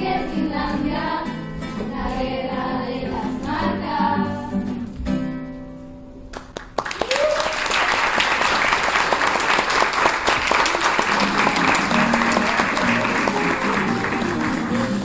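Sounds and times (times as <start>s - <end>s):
guitar-led music: 0.0s - 6.3s, 11.3s - 15.0s
audience clapping: 6.3s - 15.0s.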